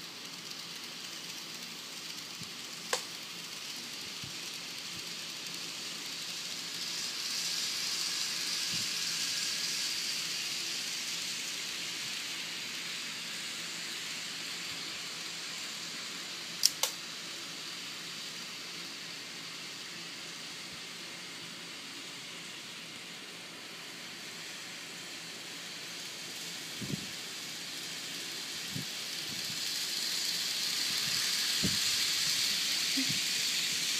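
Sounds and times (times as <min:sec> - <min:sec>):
model train wheels and motors whirring: 0:00.0 - 0:33.9
sharp clicks: 0:16.6 - 0:17.0.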